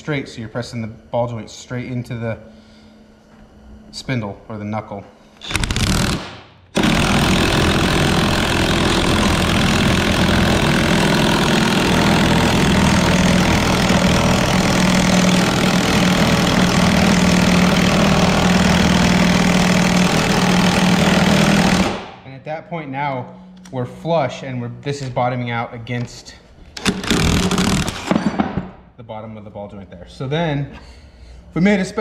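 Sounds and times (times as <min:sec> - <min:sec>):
impact wrench hammering: 0:05.4 - 0:22.2, 0:26.8 - 0:28.8.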